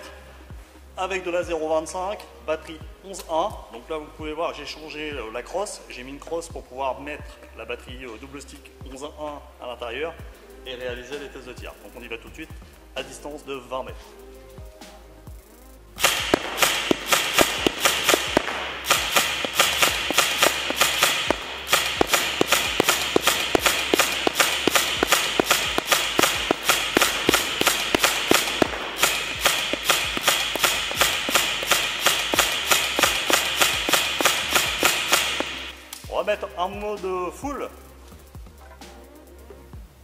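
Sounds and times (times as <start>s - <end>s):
airsoft gun shots: 16.0s - 36.1s.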